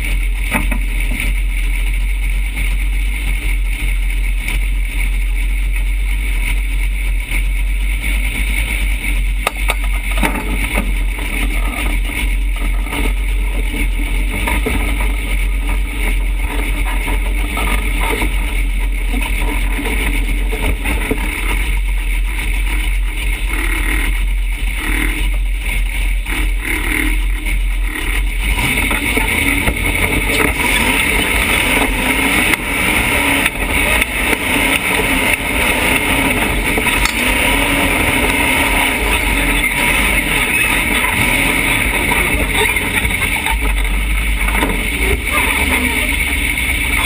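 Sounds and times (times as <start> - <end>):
buggy engine rumbling: 0.0 - 47.0.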